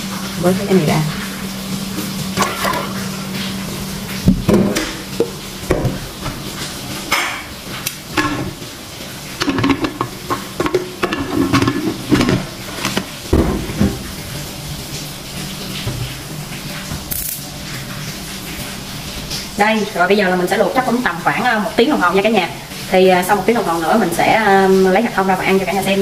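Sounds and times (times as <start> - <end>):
metallic clatter and scraping of lid: 2.4 - 3.0, 9.4 - 14.0
pot knocking down on stove: 2.4 - 3.0, 4.3 - 6.4, 8.1 - 8.6, 9.4 - 14.2.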